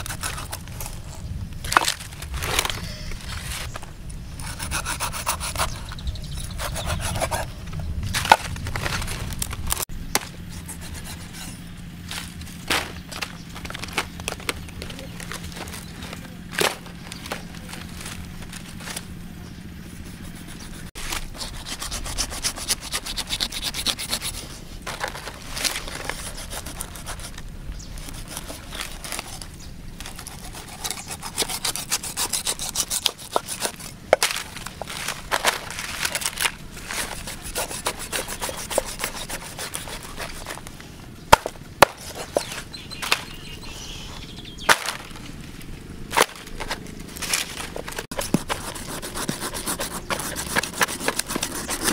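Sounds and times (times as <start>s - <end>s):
knife scraping and cutting: 0.0s - 3.8s, 4.4s - 7.5s, 10.5s - 14.0s, 19.9s - 40.7s, 41.4s - 43.3s, 46.2s - 51.9s.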